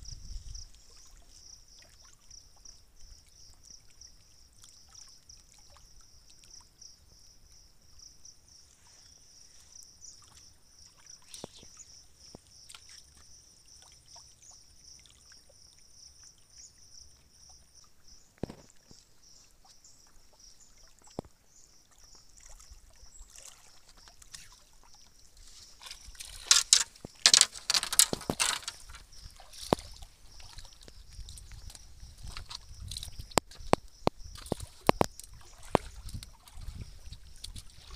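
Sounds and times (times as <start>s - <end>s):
water lapping on rocks: 18.3s - 37.9s
scattered ticks: 25.8s - 36.4s.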